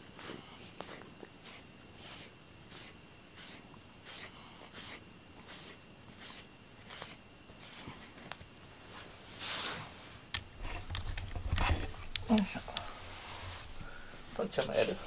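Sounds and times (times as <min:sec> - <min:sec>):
brush strokes through fur: 0:00.2 - 0:08.2, 0:08.8 - 0:10.2, 0:12.9 - 0:13.8.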